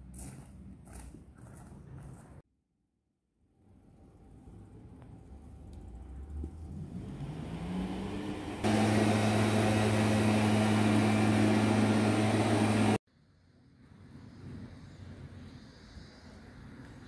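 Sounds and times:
motor hum: 7.0 - 13.0.

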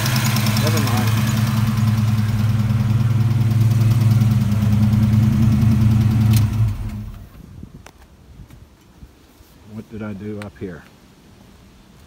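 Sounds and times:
car engine idling: 0.0 - 7.3.

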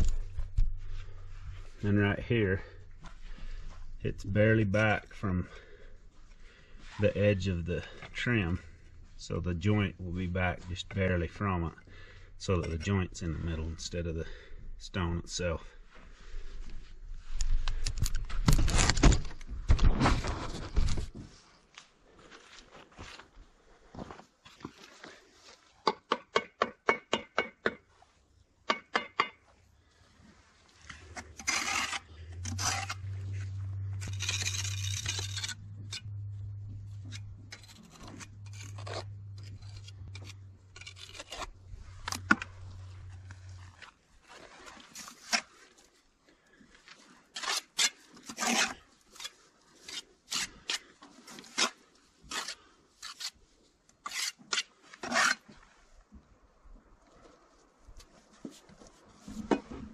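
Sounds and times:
low steady hum: 29.7 - 45.2
trowel scraping mortar: 30.9 - 45.7, 47.3 - 53.4, 54.0 - 55.6.

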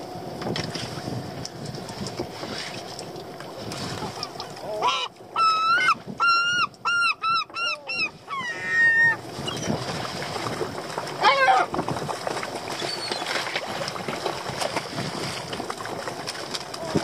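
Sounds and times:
wind and sea hiss: 0.0 - 17.0
gull calling: 4.0 - 9.8, 11.2 - 11.8.

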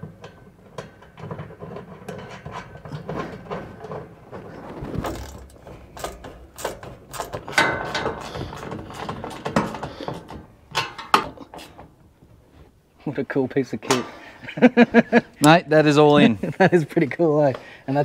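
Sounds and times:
metallic clicks and knocks: 0.0 - 11.9.

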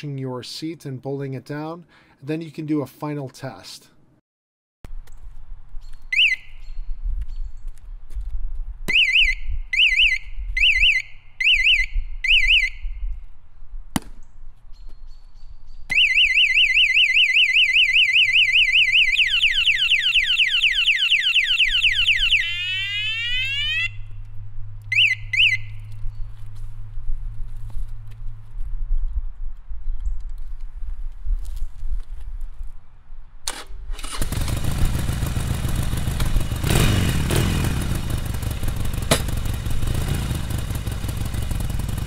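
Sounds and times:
alarm siren warbling and sweeping: 9.0 - 12.9, 15.9 - 24.1, 24.9 - 25.8
alarm warbling chirps: 15.9 - 24.0.

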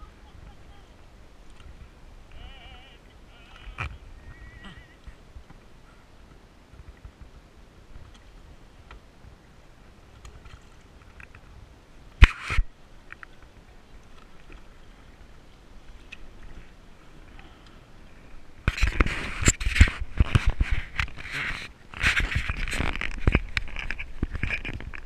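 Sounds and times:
rubbing against microphone: 12.2 - 12.7, 18.7 - 25.0.

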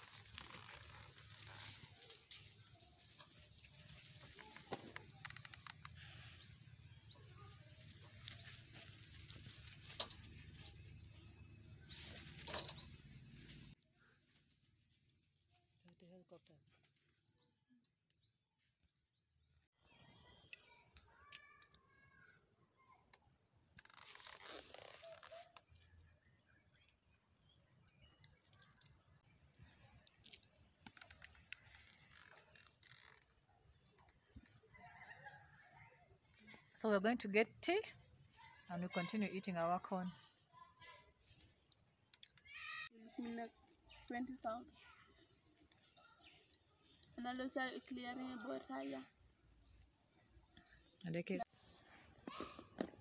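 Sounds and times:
maize cob crunching: 0.0 - 13.8, 23.7 - 35.8
small bird chirping: 0.0 - 13.8
faint chewing: 20.5 - 36.8, 40.2 - 42.6.

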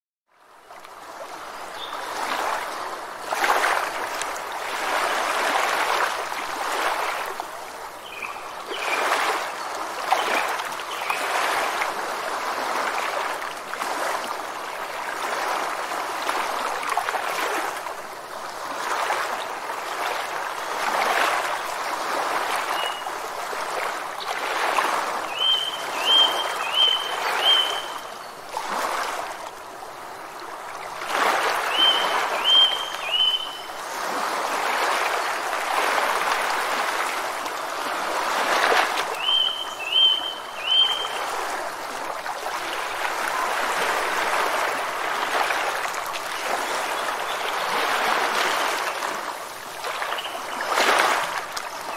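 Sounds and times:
high bird chirps: 25.4 - 28.0, 31.7 - 33.7, 39.2 - 41.2.

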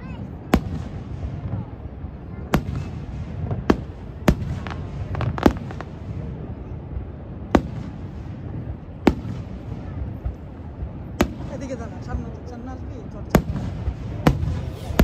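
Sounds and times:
low crowd murmur: 0.0 - 15.0
fireworks shells booming: 2.4 - 12.4, 13.2 - 15.0.

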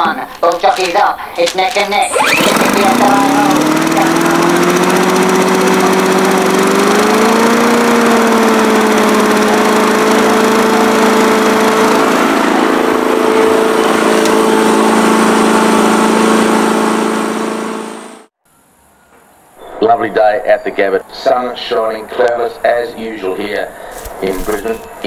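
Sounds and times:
lawn mower engine running: 2.0 - 18.3, 23.8 - 25.0.

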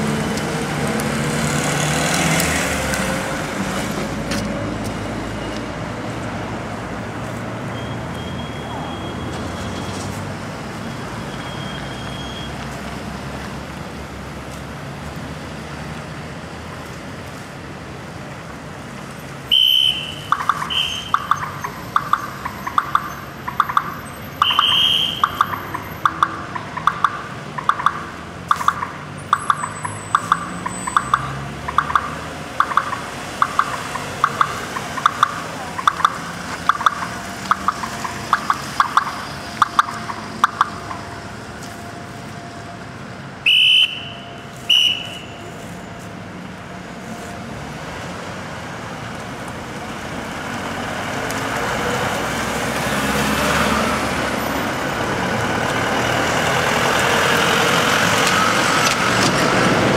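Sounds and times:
street traffic: 0.0 - 59.9
short electronic beeps: 7.7 - 9.9, 10.8 - 12.6, 19.6 - 26.4
higher-pitched beeps: 19.8 - 41.1.

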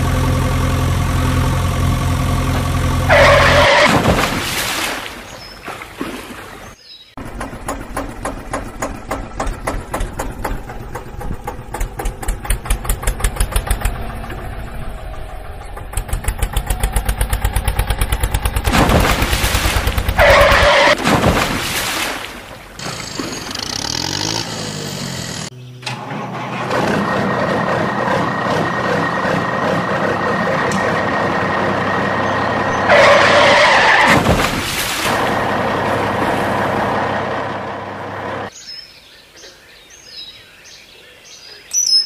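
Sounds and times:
diesel engine chugging: 0.0 - 3.9, 7.2 - 21.0, 22.8 - 34.1, 35.1 - 38.5
truck engine hum: 0.0 - 4.0, 6.4 - 21.0, 22.2 - 38.5.

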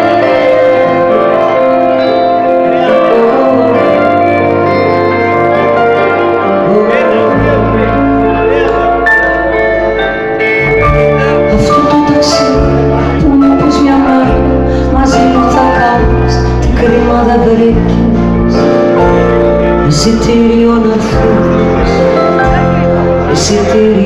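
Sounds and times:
woman singing: 0.0 - 5.1, 6.4 - 8.4, 11.4 - 18.8, 19.8 - 24.0
live band music: 0.0 - 24.0.

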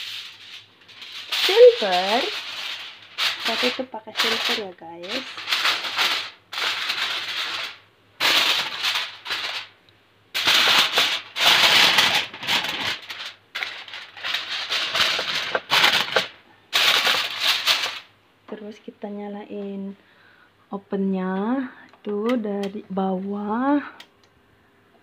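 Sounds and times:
aluminium foil crinkling: 0.0 - 9.8, 10.4 - 18.1.

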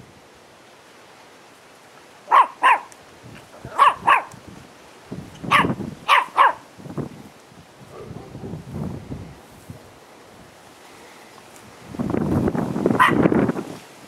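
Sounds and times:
dog barking: 2.3 - 2.9, 3.7 - 4.4, 5.5 - 6.6, 7.9 - 8.6, 13.0 - 13.2.

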